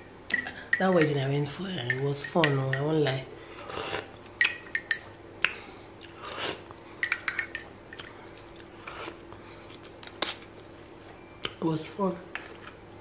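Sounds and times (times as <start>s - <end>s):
teaspoon clinking against mug: 7.0s - 7.7s.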